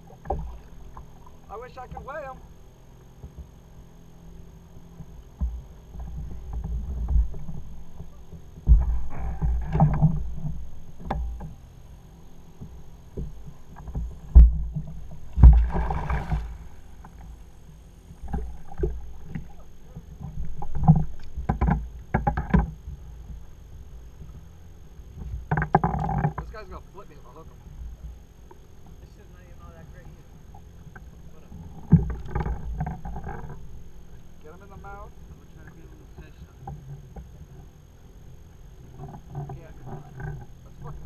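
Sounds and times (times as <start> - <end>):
knocks and thumps on hull: 4.9 - 11.6, 12.5 - 17.5, 18.1 - 23.4, 25.1 - 26.6, 30.9 - 33.9
water slapping against kayak: 12.6 - 23.1
water splashing: 14.4 - 21.4.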